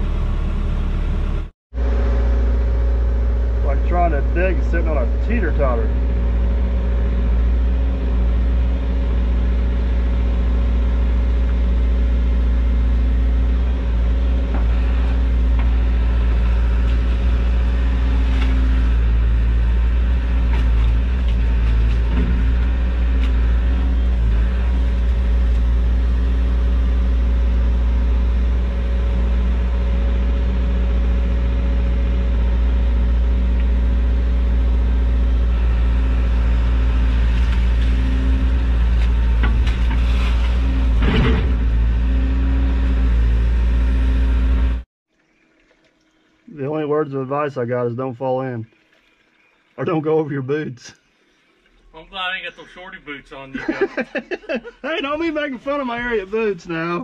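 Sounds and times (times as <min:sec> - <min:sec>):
excavator diesel engine running: 0:00.0 - 0:44.8.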